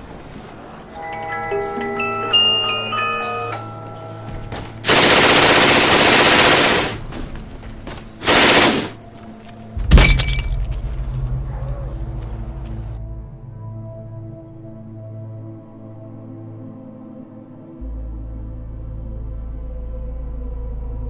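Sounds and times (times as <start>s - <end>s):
video game automatic gunfire: 4.8s - 7.1s, 8.2s - 9.0s.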